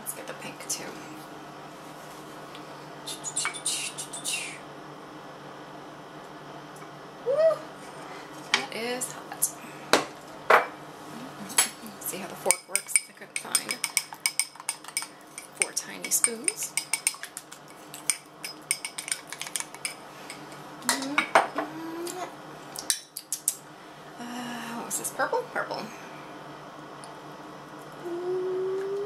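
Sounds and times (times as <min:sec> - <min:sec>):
utensil clinking against bowl: 0:12.5 - 0:20.5.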